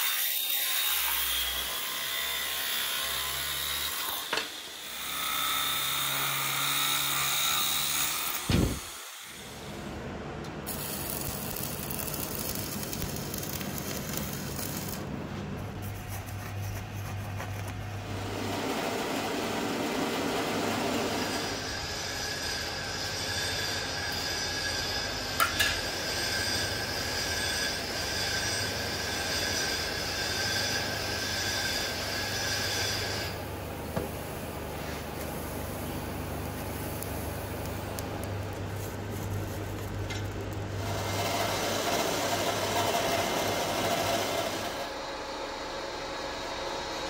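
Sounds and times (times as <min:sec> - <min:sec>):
metalworking machinery running: 0:17.9 - 0:34.7, 0:35.5 - 0:47.0.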